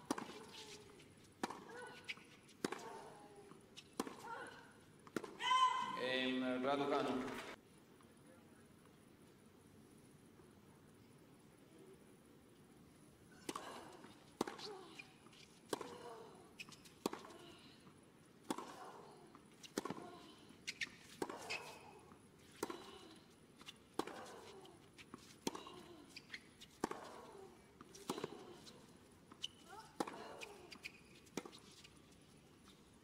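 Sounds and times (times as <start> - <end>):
tennis ball bouncing: 0.0 - 4.4, 13.4 - 17.5, 18.4 - 31.8
racket striking tennis ball: 1.4 - 3.2, 14.4 - 14.7, 18.4 - 21.9, 22.5 - 25.8, 26.4 - 31.6.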